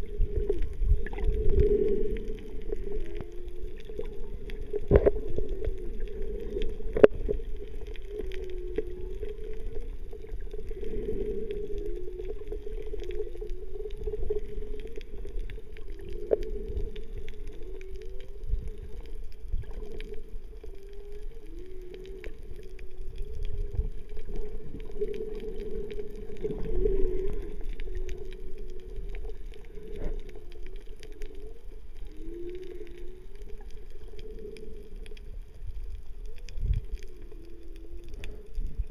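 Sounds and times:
low underwater wash: 0.0 - 38.9
faint clicks: 0.1 - 38.9.

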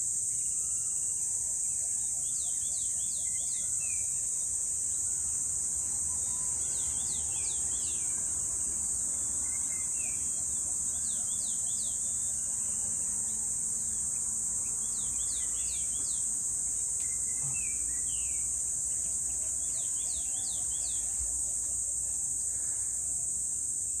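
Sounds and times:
insect chorus drone: 0.0 - 24.0.

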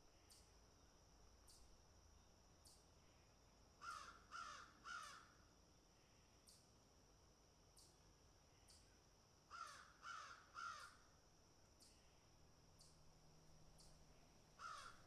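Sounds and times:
bird harsh calls: 14.6 - 15.0.

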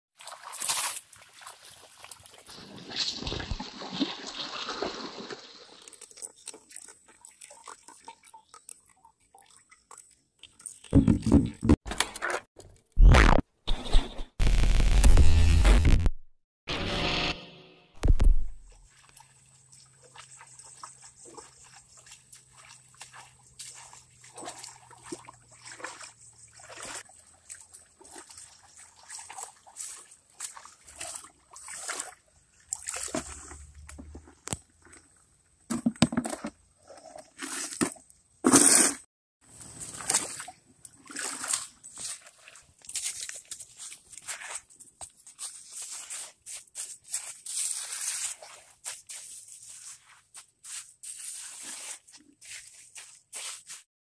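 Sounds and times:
feet splashing through stream water: 0.2 - 8.6, 18.8 - 34.5, 39.5 - 53.9.

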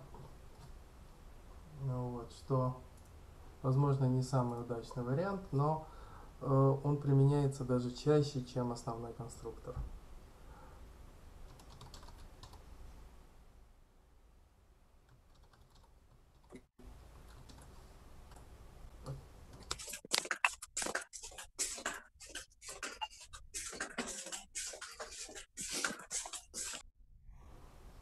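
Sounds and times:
typing on a keyboard: 11.5 - 12.6, 15.2 - 16.6.

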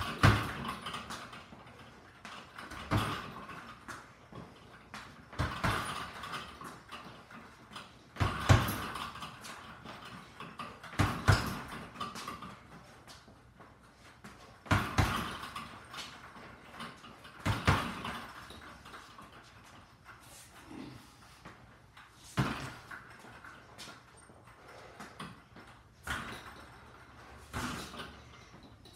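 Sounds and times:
punches smacking bag: 0.0 - 1.0, 2.6 - 3.5, 5.3 - 6.5, 8.2 - 9.3, 10.9 - 12.4, 14.6 - 15.7, 17.4 - 18.2, 22.4 - 22.8, 27.5 - 28.1
bag rattling on cords: 0.0 - 28.9.

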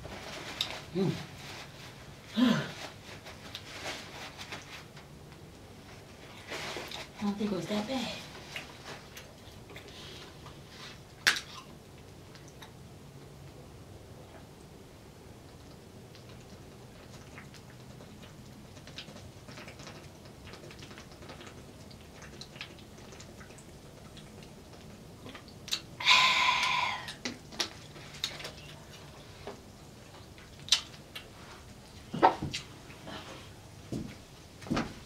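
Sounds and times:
breath blown through lips: 26.0 - 27.2.

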